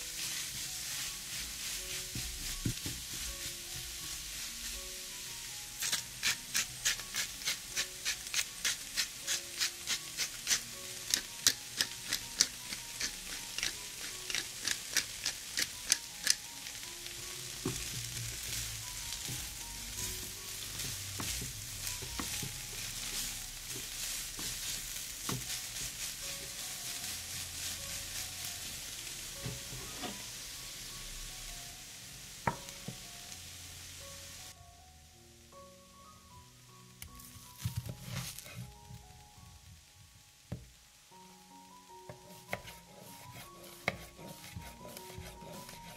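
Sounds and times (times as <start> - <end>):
spatula stirring: 0.0 - 16.4, 17.6 - 30.2, 42.1 - 45.9
food sizzling in a frying pan: 0.0 - 34.6, 37.1 - 45.9.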